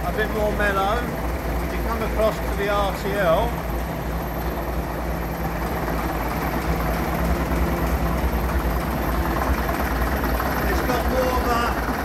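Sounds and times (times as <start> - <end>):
diesel bus engines idling: 0.0 - 12.0.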